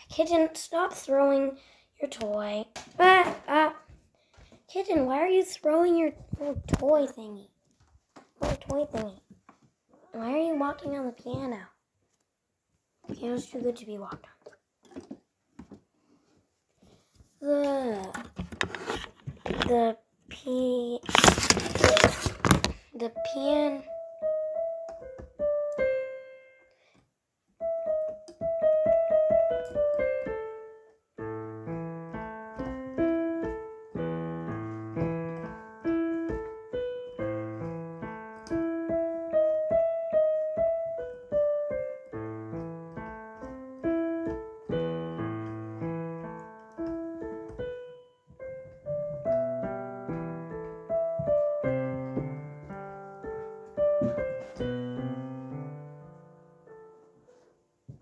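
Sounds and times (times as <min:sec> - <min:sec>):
piano playing a tune: 0:21.1 - 0:26.9, 0:27.5 - 0:58.0.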